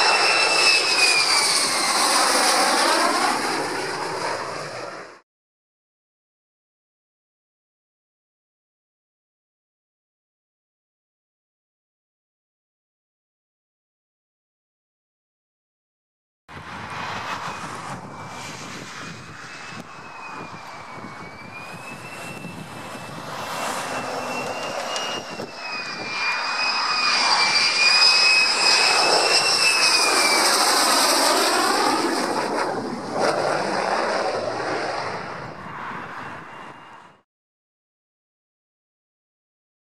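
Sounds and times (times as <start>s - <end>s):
jet engine whine: 0.0s - 5.2s, 16.5s - 37.3s
rushing jet noise: 0.0s - 5.2s, 16.5s - 37.2s.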